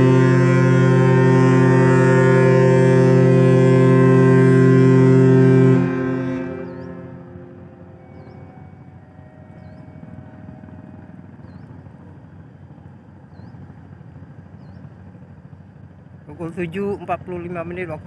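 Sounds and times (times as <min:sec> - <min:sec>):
ship horn blast: 0:00.0 - 0:12.4
low ship rumble: 0:00.0 - 0:18.0
faint high chirp: 0:07.8 - 0:11.9.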